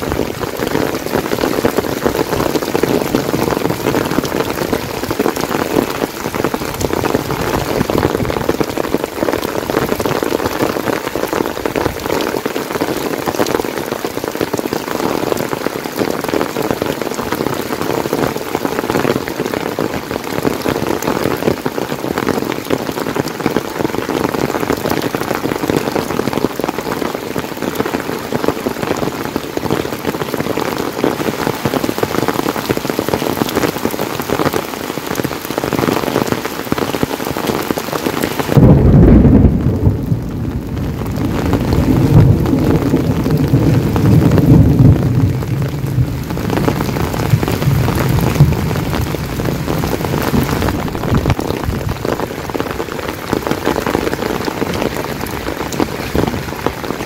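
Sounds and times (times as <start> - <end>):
thunder rumbling: 0.0 - 12.2, 38.5 - 55.5
heavy rain: 0.0 - 57.0.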